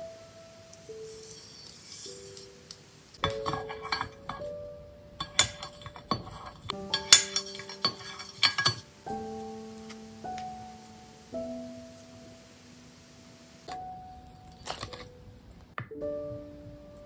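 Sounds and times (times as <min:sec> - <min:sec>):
soft piano music: 0:00.0 - 0:17.0
tongs clinking against glass dish: 0:03.2 - 0:04.5, 0:05.2 - 0:08.9.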